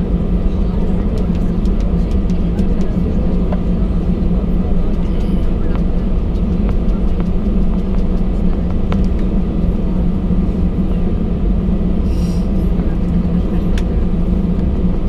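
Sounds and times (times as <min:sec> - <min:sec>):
airliner rolling rumble: 0:00.0 - 0:15.0
jet engines droning: 0:00.0 - 0:15.0.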